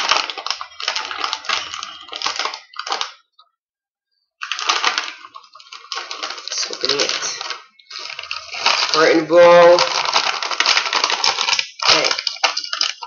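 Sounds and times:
snacks rattling in bag: 0:00.0 - 0:03.2, 0:04.4 - 0:13.0
plastic bag crinkling: 0:00.0 - 0:03.3, 0:04.4 - 0:13.0.

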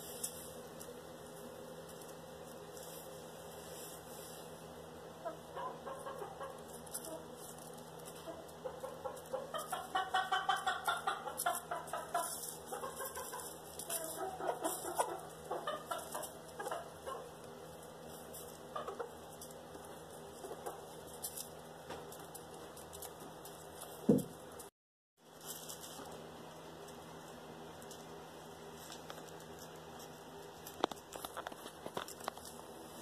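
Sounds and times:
chickens clucking: 0:04.0 - 0:23.9.

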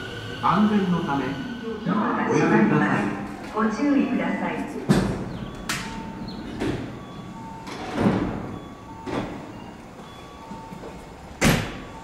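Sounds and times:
train doors sliding shut: 0:04.8 - 0:09.9, 0:10.9 - 0:11.9
loud door thud: 0:11.4 - 0:11.8.

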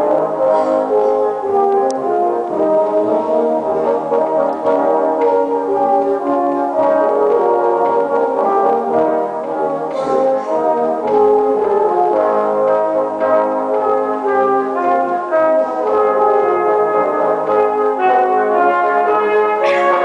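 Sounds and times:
brass band playing chords: 0:00.0 - 0:20.0
trombones: 0:00.0 - 0:20.0.

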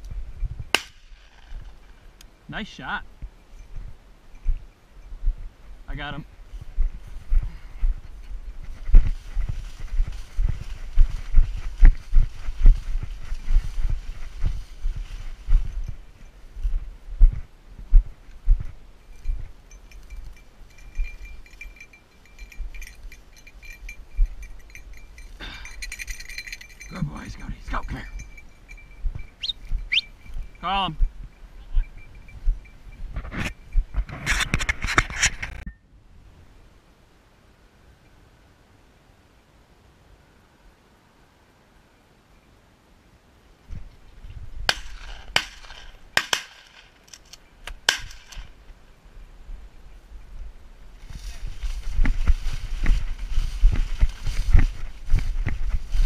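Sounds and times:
footsteps in grass: 0:06.3 - 0:25.2, 0:50.9 - 0:56.0
stalks brushing and rustling: 0:06.5 - 0:16.9, 0:50.9 - 0:56.0
dog collar bell jingling: 0:19.0 - 0:34.4.

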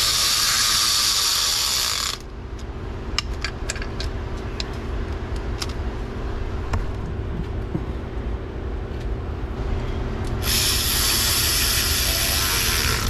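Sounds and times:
steady low hum: 0:00.0 - 0:13.0
loud steady hiss: 0:10.4 - 0:13.0.

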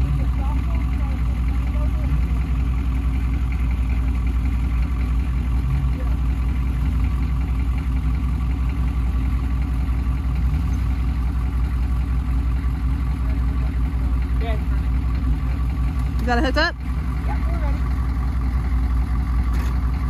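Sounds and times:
car engine idling: 0:00.0 - 0:20.0.

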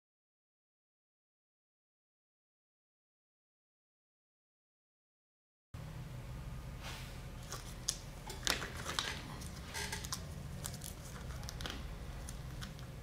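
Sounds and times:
steady low hum: 0:05.8 - 0:13.0.

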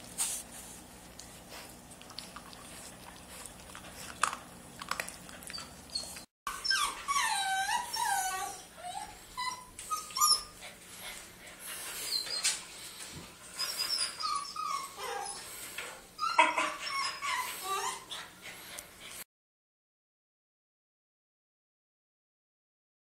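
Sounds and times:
puppy whimpering: 0:05.0 - 0:10.9, 0:11.9 - 0:15.5, 0:16.2 - 0:18.4.

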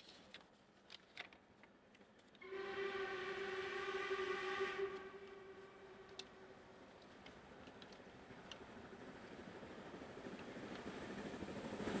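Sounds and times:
steam locomotive whistle blast: 0:02.4 - 0:06.5
faint clicks: 0:06.0 - 0:08.7.

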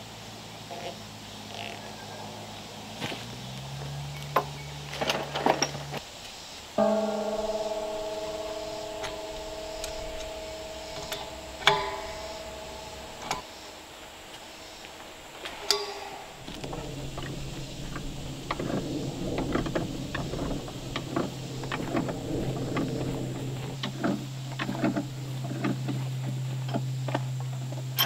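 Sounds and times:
steady low hum: 0:06.0 - 0:27.4.

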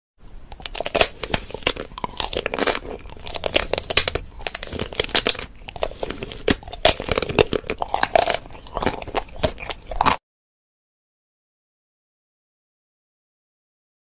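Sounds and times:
man crunching popcorn: 0:00.5 - 0:10.2
plastic bag crinkling: 0:00.6 - 0:10.2.

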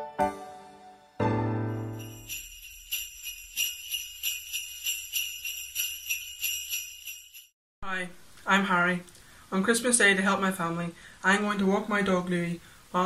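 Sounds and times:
sleigh bells shaking: 0:01.7 - 0:07.6.

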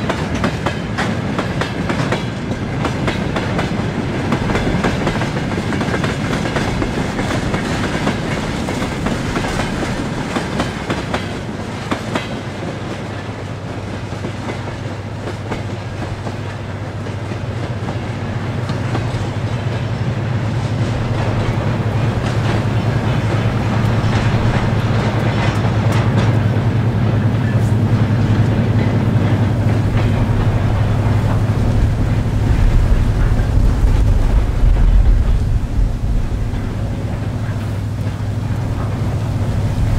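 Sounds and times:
freight train rolling past: 0:00.0 - 0:39.9
wheels clicking over rail joints: 0:00.0 - 0:39.9
steady low drone: 0:20.4 - 0:39.9.

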